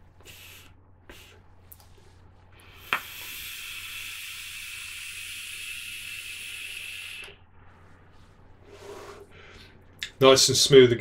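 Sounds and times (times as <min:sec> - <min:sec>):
atomizer hissing: 0:02.6 - 0:09.6.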